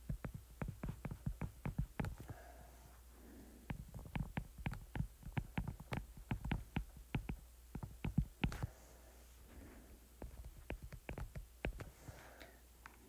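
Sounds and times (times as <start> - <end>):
stylus tapping on tablet screen: 0.0 - 2.5, 3.7 - 8.7, 10.2 - 12.0
steady low hum: 0.0 - 13.0.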